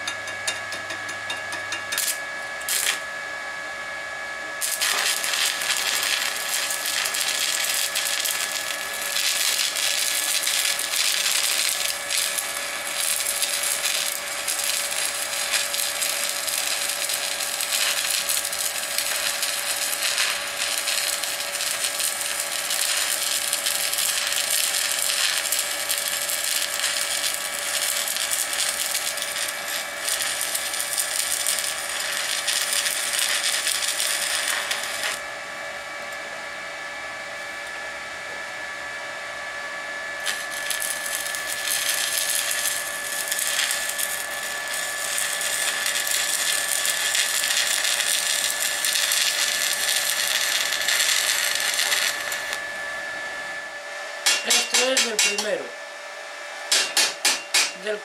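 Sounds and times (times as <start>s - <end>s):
welding arc crackling: 1.7s - 3.1s, 4.6s - 35.3s, 40.2s - 52.6s, 54.2s - 55.7s.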